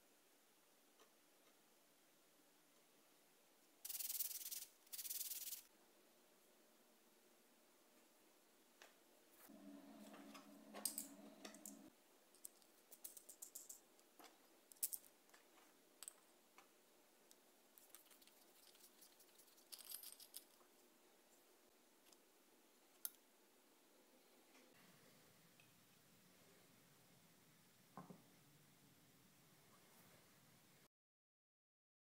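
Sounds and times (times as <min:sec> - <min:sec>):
low hum: 0:09.4 - 0:11.9
small metal hardware clinking: 0:19.7 - 0:20.6.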